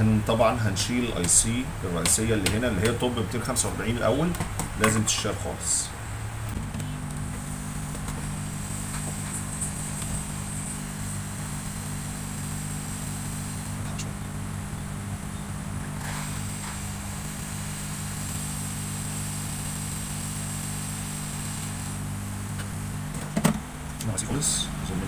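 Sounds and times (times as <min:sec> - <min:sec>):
high motor whine: 0:00.0 - 0:25.0
small electric motor humming: 0:06.7 - 0:23.2.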